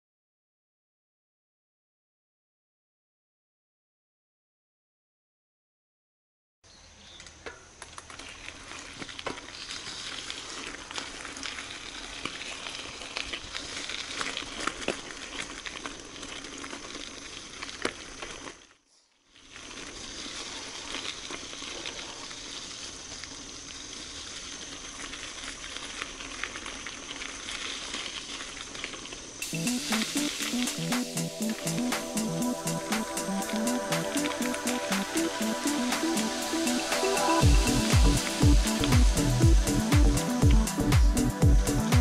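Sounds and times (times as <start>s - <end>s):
bike tyres crunching on gravel: 6.7s - 42.0s
bike clicks and rattles: 7.1s - 18.8s.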